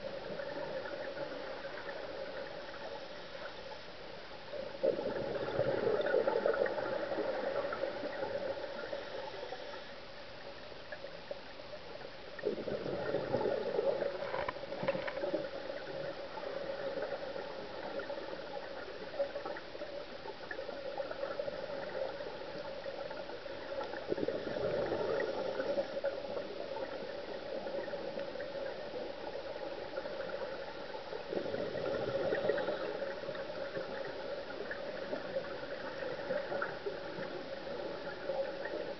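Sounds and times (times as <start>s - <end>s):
steady hiss: 0.0s - 38.9s
diver's bubbles gurgling: 4.8s - 8.9s, 12.4s - 19.9s, 20.5s - 38.9s.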